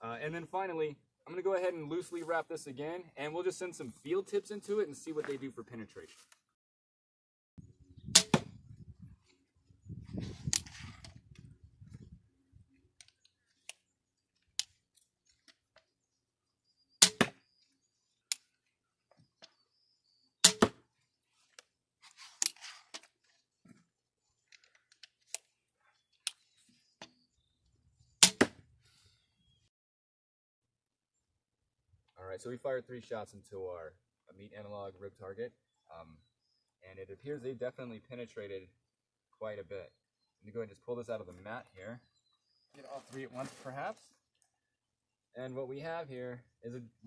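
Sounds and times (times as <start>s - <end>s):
crossbow shots cracking: 8.1s - 8.6s, 17.0s - 17.4s, 20.4s - 20.8s, 28.2s - 28.6s.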